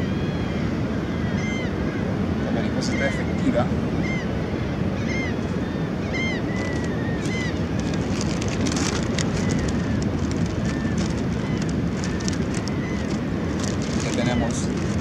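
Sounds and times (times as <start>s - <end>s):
wind buffeting microphone: 0.0s - 15.0s
bird call notes: 5.0s - 7.9s
plastic bag crinkling: 6.6s - 15.0s.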